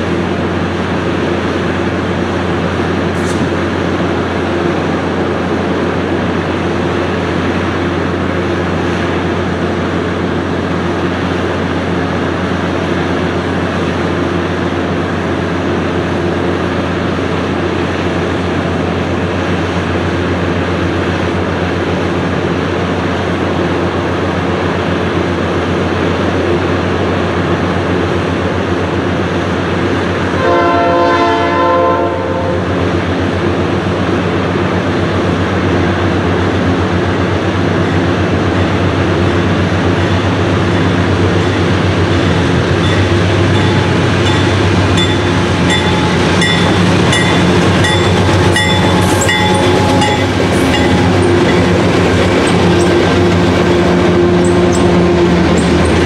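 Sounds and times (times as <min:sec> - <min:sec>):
diesel locomotive engine drone: 0:00.0 - 0:56.0
train horn blast: 0:30.4 - 0:32.7, 0:47.8 - 0:56.0
short high ringing notes: 0:42.8 - 0:51.8.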